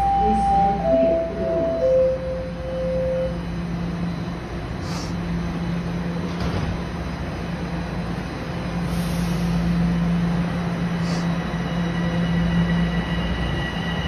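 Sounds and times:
subway train electrical hum: 0:00.0 - 0:14.0
air hissing: 0:08.8 - 0:09.7.

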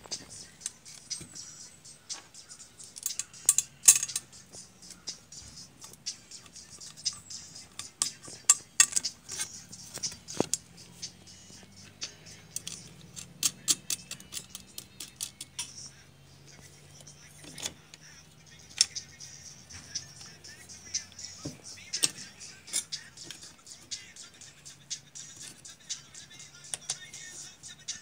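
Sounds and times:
plastic pieces clicking: 0:12.6 - 0:15.8.

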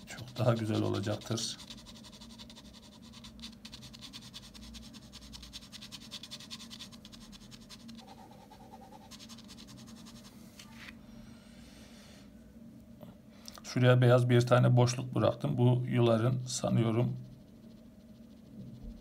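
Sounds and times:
ballpoint pen scratching on paper: 0:00.0 - 0:10.3, 0:16.7 - 0:19.0.

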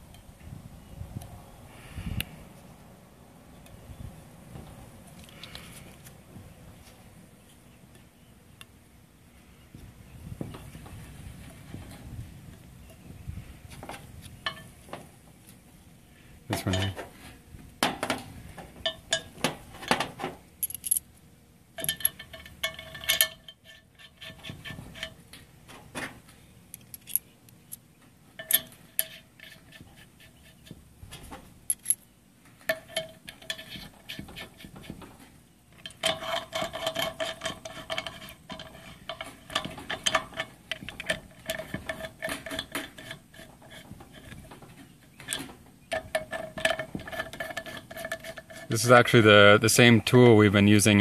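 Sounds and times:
metal fittings clinking on metal: 0:21.8 - 0:25.2, 0:26.7 - 0:27.8, 0:28.4 - 0:29.8, 0:31.7 - 0:32.0, 0:32.7 - 0:34.2, 0:35.8 - 0:44.4.

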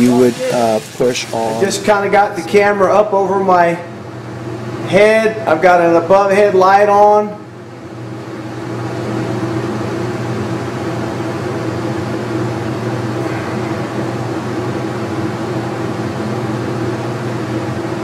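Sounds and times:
welding arc hissing: 0:00.0 - 0:02.8
steady hum: 0:00.0 - 0:18.0.

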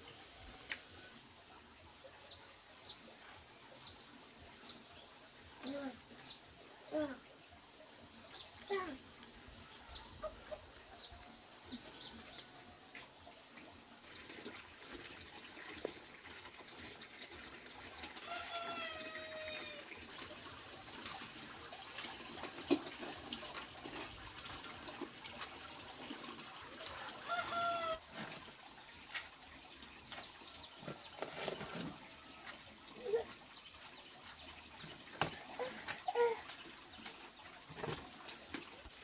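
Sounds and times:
rooster crowing: 0:18.2 - 0:19.8, 0:27.0 - 0:28.0.

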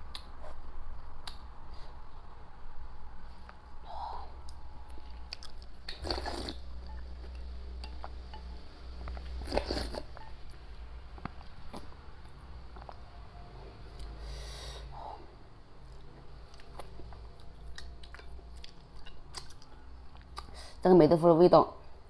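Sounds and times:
soft chewing: 0:04.4 - 0:13.1, 0:15.8 - 0:20.6
slurping porridge: 0:05.9 - 0:06.6, 0:09.4 - 0:10.1.

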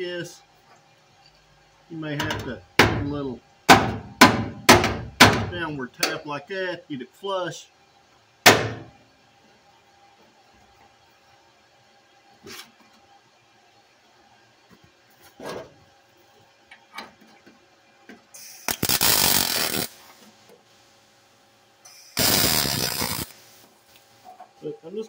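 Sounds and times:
wire-feed welding bursts: 0:18.4 - 0:20.1, 0:21.9 - 0:23.6.

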